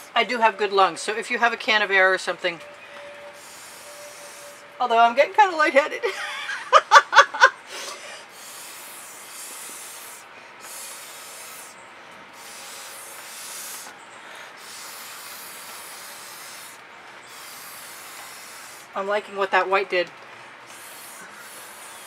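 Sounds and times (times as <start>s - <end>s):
breath blown through a straw: 2.8s - 4.8s, 7.7s - 19.0s, 20.7s - 22.0s.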